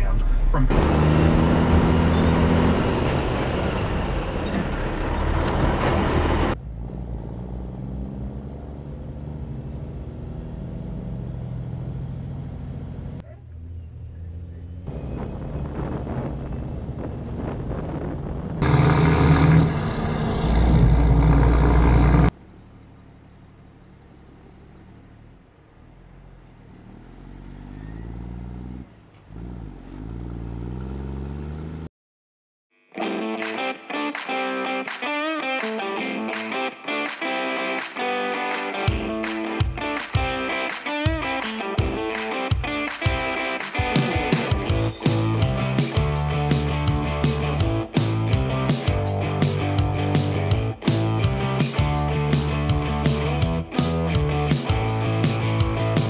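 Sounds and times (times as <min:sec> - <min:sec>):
diesel truck engine droning: 0:00.0 - 0:31.9
tyres rumbling: 0:00.0 - 0:31.9
distorted electric guitar music: 0:32.9 - 0:56.0.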